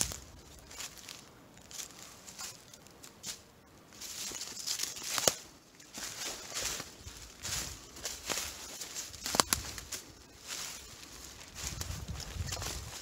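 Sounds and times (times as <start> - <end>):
footsteps crunching dry leaves: 0.0 - 13.0
twig snapping: 4.5 - 6.0, 9.2 - 9.9.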